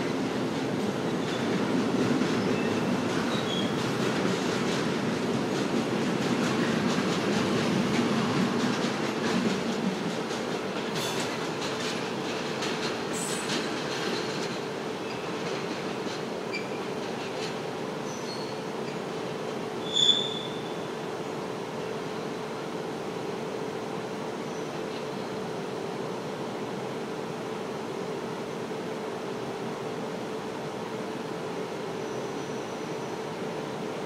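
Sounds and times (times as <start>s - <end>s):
freight train wagons rumbling: 0.0s - 21.2s
high-pitched wheel squeals: 19.8s - 20.6s.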